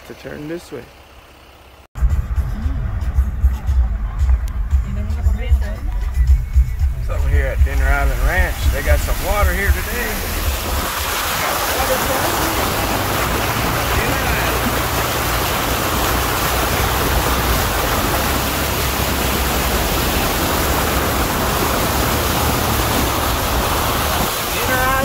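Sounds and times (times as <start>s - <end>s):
low rumble: 2.0s - 25.0s
tyre splashing through water: 7.6s - 25.0s.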